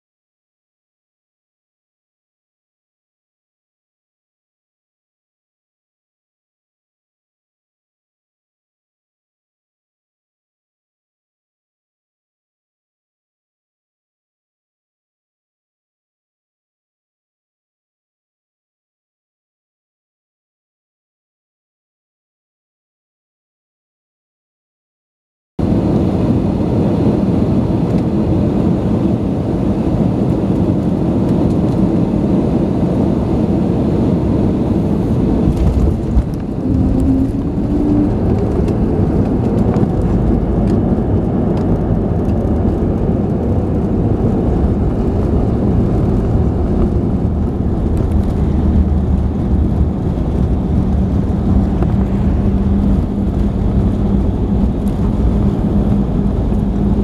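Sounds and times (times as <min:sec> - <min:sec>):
airplane cabin rumble: 0:25.6 - 0:57.0
engine hum: 0:25.6 - 0:57.0.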